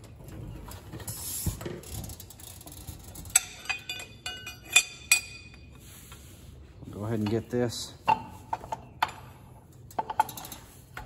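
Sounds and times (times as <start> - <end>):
metallic clinks: 2.1 - 5.8.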